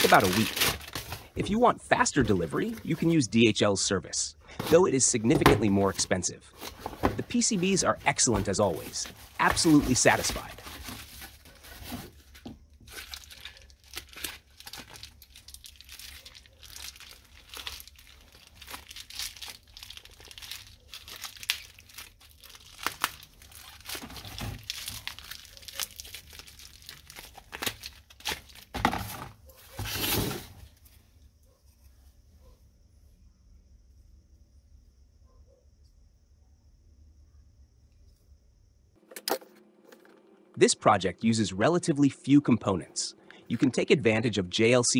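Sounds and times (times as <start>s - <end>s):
bubble wrap crinkling: 0.0s - 3.1s, 6.5s - 30.2s.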